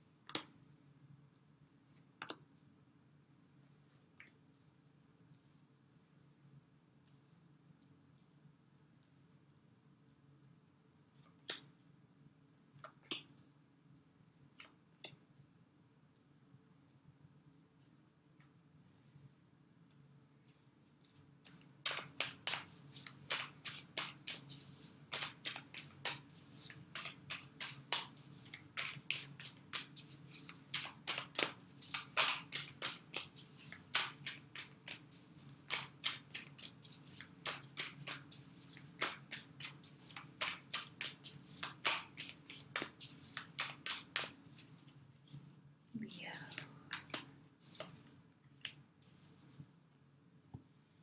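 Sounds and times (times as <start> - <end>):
cards being shuffled: 21.5 - 45.0.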